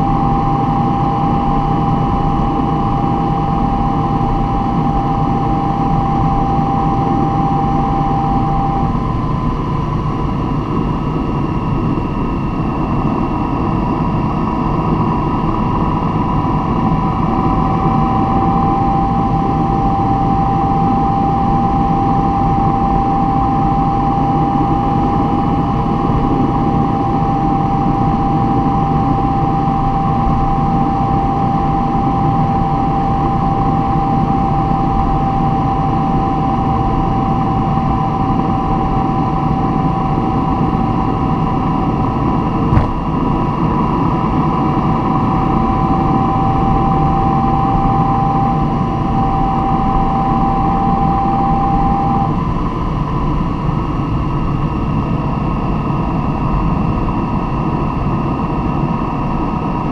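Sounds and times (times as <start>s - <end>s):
constant vehicle whine: 0.0s - 59.9s
vehicle low rumble: 42.7s - 43.2s.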